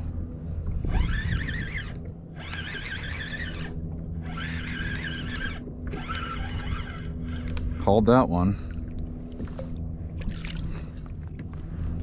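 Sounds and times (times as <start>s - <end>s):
fishing reel gears whining: 0.8s - 7.9s.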